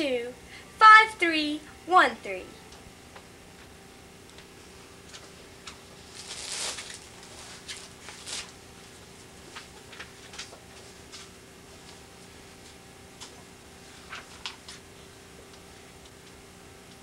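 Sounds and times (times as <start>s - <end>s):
faint steady hum: 0.0s - 17.0s
book pages turning: 6.0s - 8.6s.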